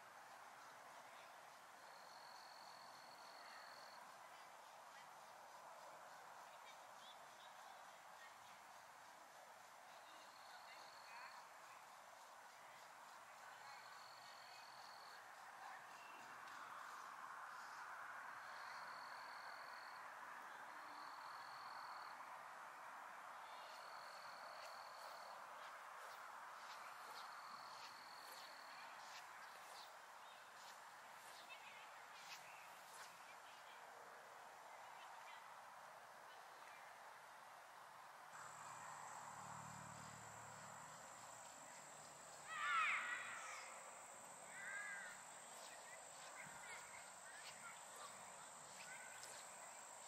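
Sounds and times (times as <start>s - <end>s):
steady hiss: 0.0s - 50.0s
insects trilling: 38.4s - 50.0s.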